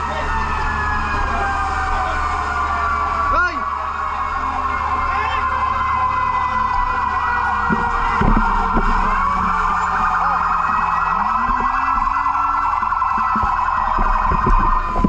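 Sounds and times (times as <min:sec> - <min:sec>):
emergency vehicle sirens wailing: 0:00.0 - 0:15.0.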